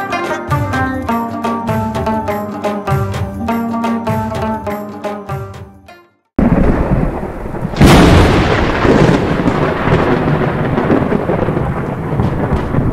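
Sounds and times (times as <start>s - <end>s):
rain: 6.4s - 12.9s
thunder crack: 6.4s - 12.9s.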